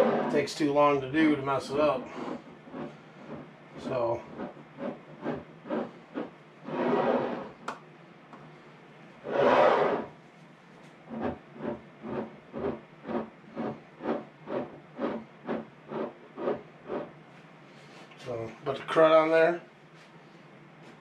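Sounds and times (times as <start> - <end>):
paper towel rubbing glass rims: 0.0 - 0.5, 2.0 - 7.6, 9.2 - 10.1, 11.1 - 17.1.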